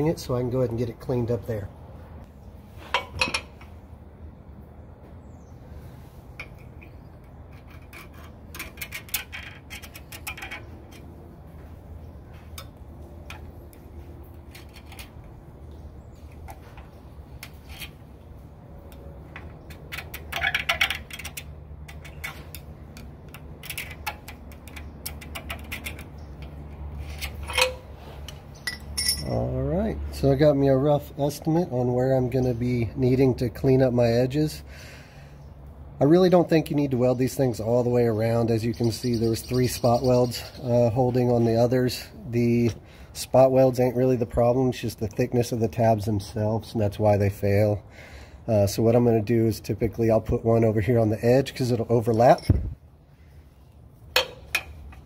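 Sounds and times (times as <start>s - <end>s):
steel pick scraping metal: 6.3s - 11.2s, 14.4s - 15.4s, 17.4s - 18.1s, 19.6s - 29.3s, 54.1s - 55.0s.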